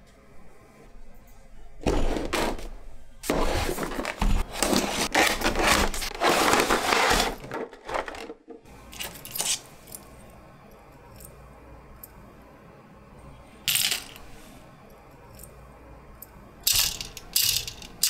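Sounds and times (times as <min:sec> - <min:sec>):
cardboard box scraping and rustling: 0:03.2 - 0:08.1.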